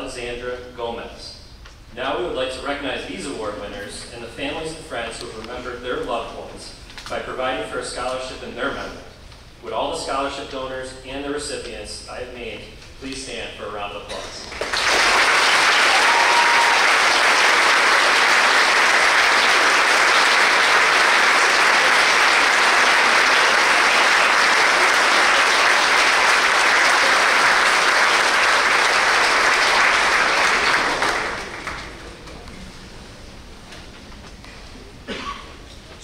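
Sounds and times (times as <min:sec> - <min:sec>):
large crowd applauding: 0:14.5 - 0:32.1.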